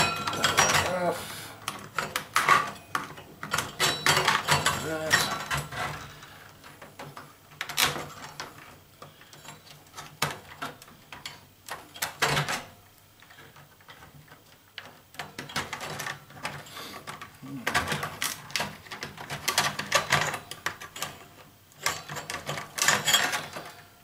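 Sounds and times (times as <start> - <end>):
circuit board rattling on metal: 1.8 - 8.7.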